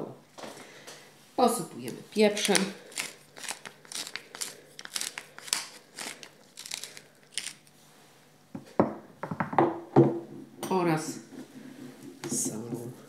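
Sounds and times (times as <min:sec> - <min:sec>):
pepper mill grinding: 0:01.9 - 0:07.7.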